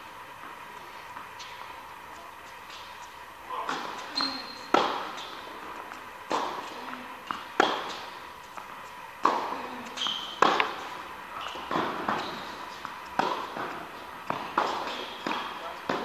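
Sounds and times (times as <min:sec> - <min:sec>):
tennis ball struck and bouncing: 0:03.6 - 0:16.0.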